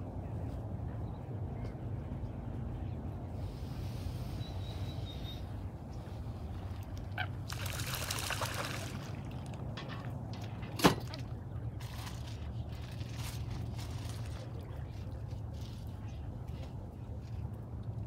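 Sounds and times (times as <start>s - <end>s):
low steady rumble: 0.0s - 18.0s
water splashing and trickling: 6.5s - 16.2s.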